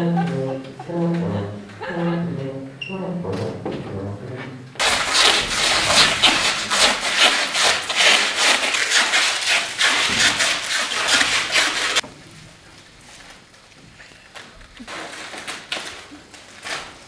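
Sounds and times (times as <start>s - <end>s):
dense rapid scraping and rustling: 4.1s - 12.0s.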